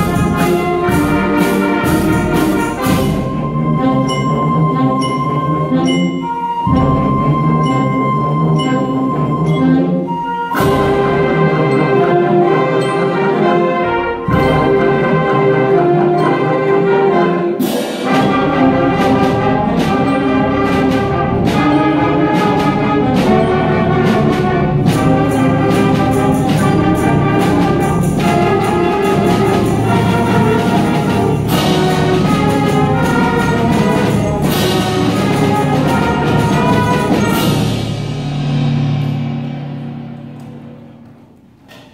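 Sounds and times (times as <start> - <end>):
concert band playing: 0.0 - 41.9
percussion strokes: 0.0 - 41.9.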